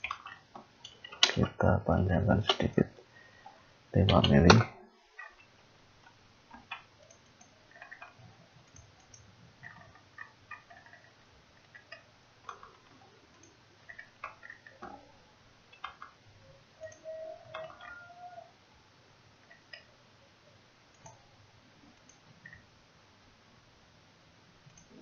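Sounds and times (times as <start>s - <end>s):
computer mouse clicks: 0.0s - 1.4s, 5.2s - 15.0s, 15.7s - 16.2s, 16.8s - 18.0s, 20.9s - 21.2s, 22.0s - 22.6s, 24.7s - 25.0s.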